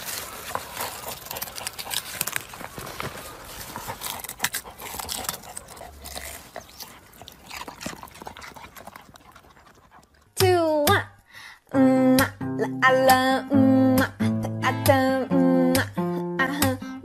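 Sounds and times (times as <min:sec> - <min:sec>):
dog gnawing a radish: 0:00.0 - 0:10.6.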